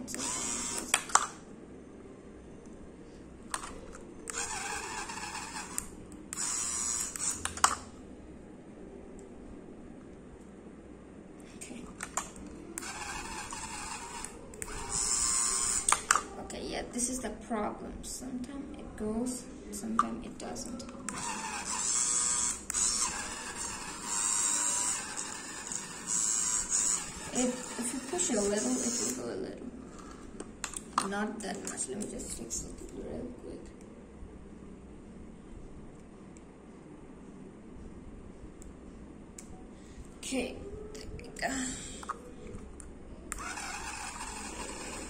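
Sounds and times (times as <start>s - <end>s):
small electric motors whirring: 0.0s - 1.4s, 4.3s - 7.8s, 12.8s - 16.2s, 21.1s - 29.2s, 43.3s - 45.0s.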